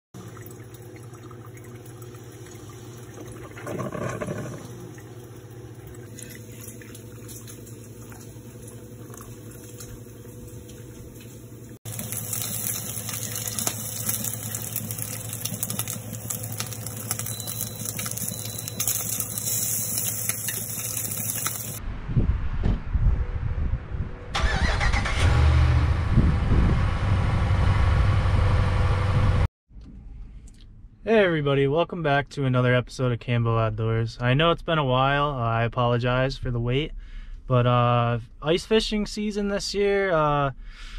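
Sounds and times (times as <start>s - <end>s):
coffee maker gurgle: 0.2s - 11.0s, 11.7s - 21.8s
coffee maker brewing: 0.2s - 21.8s
bacon sizzling in a frying pan: 11.2s - 21.8s.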